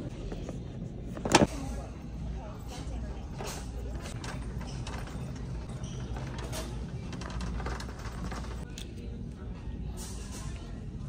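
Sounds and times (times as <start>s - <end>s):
store background noise: 0.0s - 11.0s
shopping cart rolling: 2.8s - 8.6s.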